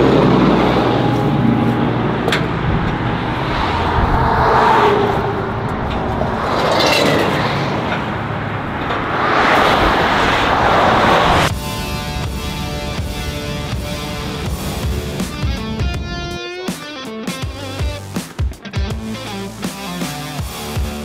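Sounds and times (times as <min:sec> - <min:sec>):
traffic passing close by: 0:00.0 - 0:16.4
guitar music: 0:11.5 - 0:21.0.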